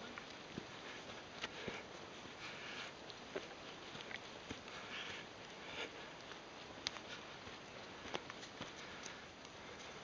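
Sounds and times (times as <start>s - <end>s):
light clicks: 6.2s - 7.2s.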